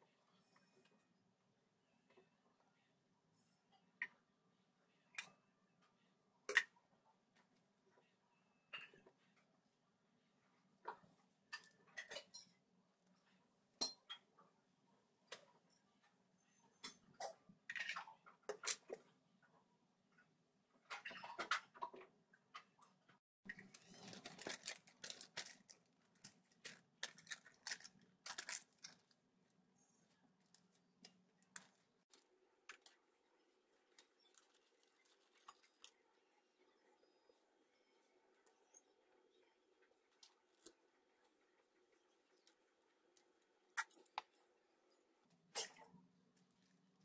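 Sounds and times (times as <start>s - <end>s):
plastic bag crinkling: 23.5s - 29.2s, 33.9s - 36.0s.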